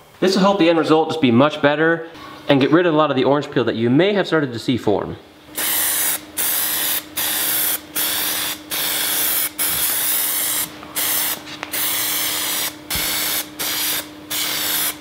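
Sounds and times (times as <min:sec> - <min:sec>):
aerosol can spraying: 0:05.6 - 0:15.0.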